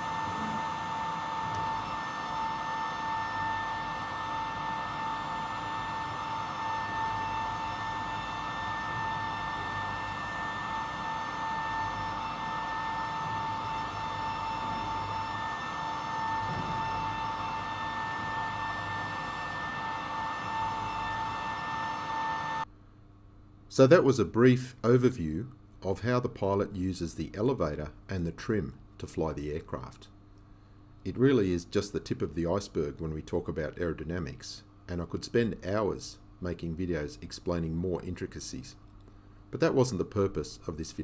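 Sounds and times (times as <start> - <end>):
high-pitched machine whine: 0.0 - 22.7.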